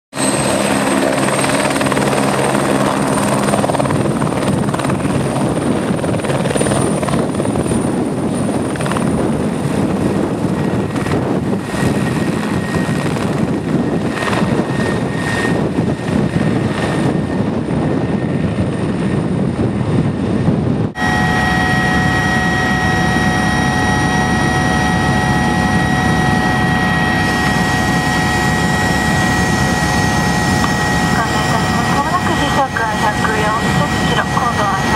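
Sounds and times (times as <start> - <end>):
helicopter engine and rotor: 0.1 - 34.9
high whine: 20.8 - 34.9.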